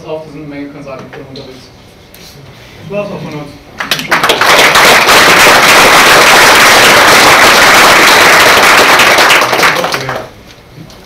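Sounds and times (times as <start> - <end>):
audience applauding: 3.8 - 10.4.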